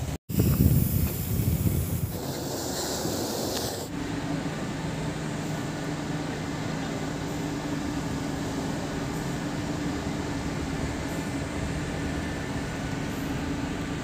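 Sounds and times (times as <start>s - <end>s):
wind rumbling on microphone: 0.0s - 3.9s
ship machinery humming: 0.0s - 14.0s
hiss: 0.3s - 4.1s.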